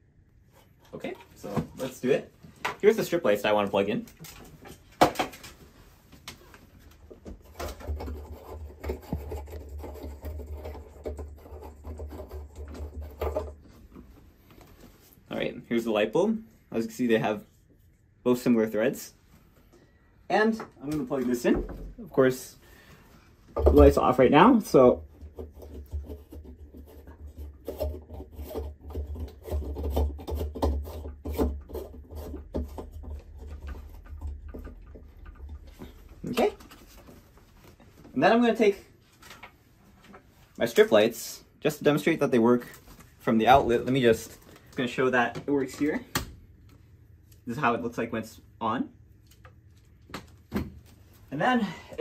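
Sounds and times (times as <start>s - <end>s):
light bulb scratchy rubbing: 7.4s - 13.6s.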